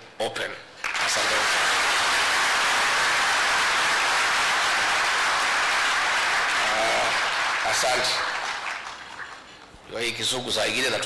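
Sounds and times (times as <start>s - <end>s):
audience applauding: 0.8s - 9.6s.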